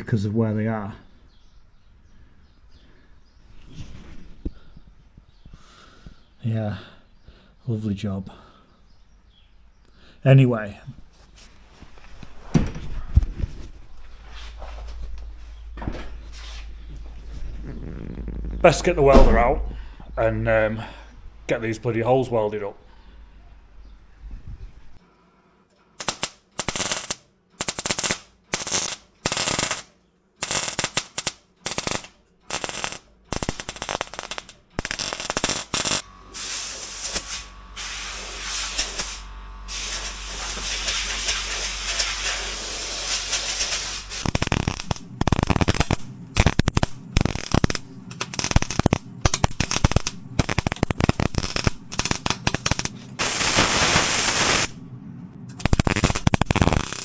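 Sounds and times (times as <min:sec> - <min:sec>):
welding arc crackling and hissing: 0:26.0 - 0:54.8, 0:55.5 - 0:57.0.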